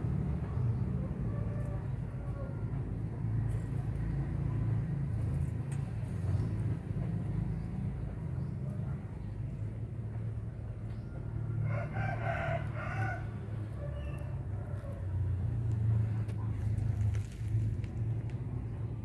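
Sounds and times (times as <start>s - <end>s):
steady low rumble: 0.0s - 19.0s
rooster crowing: 11.6s - 15.0s.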